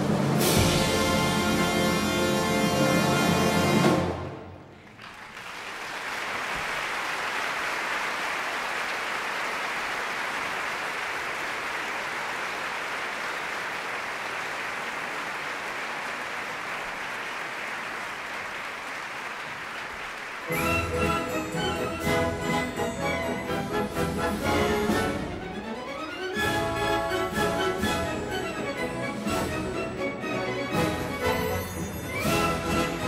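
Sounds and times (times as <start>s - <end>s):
audience applause: 4.7s - 23.4s.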